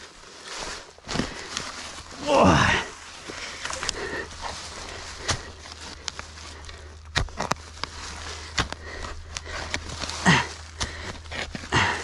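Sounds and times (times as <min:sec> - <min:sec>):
shovel digging into soil: 0:05.1 - 0:12.0.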